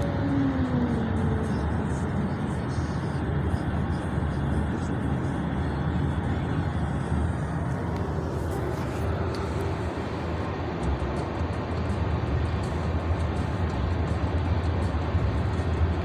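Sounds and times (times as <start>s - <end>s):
car tyres and engine rumble: 0.0s - 16.0s.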